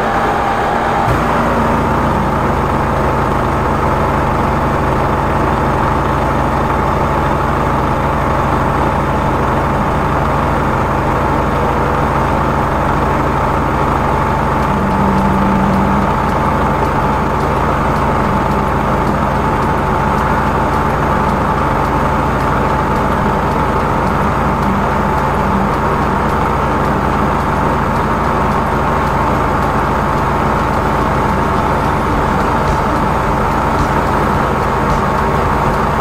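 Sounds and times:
drain cleaning machine humming: 0:00.0 - 0:36.0.

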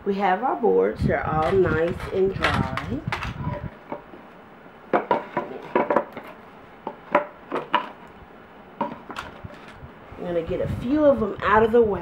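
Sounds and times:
wooden boards knocking and clattering: 0:04.9 - 0:08.0.

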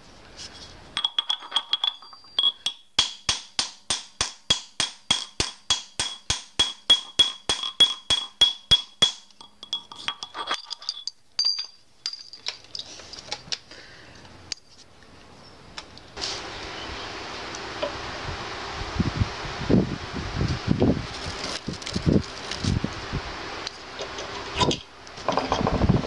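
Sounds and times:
hammer striking steel ringing: 0:01.0 - 0:10.2
metal ring clinking on anvil: 0:01.0 - 0:12.9.

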